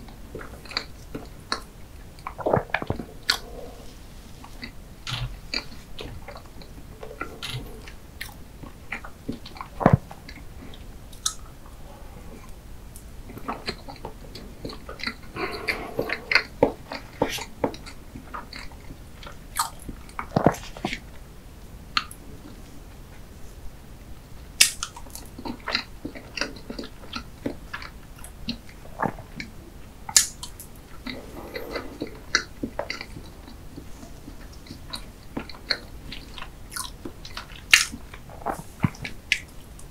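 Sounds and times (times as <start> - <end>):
wet chewing: 0.6 - 12.5.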